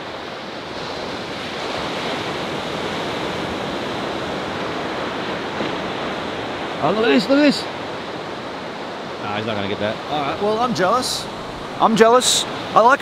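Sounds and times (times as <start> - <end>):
surf breaking on sandy beach: 0.0 - 13.0.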